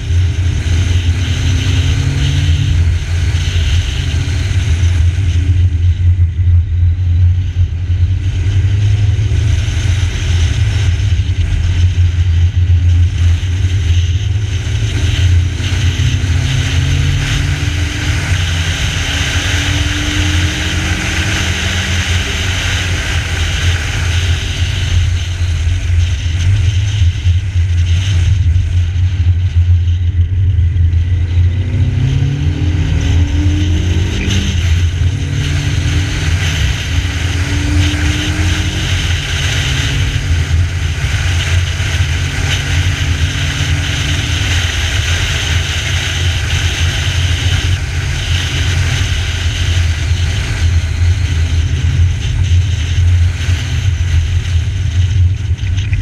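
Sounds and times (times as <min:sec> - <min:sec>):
car engine accelerating: 0:00.0 - 0:56.0
wind and road noise: 0:00.0 - 0:56.0.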